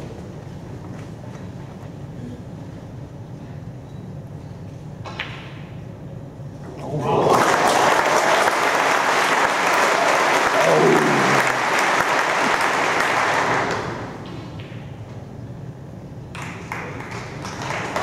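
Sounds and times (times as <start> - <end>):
audience applauding: 6.9 - 14.2, 16.4 - 18.0
person calling out: 10.5 - 11.6.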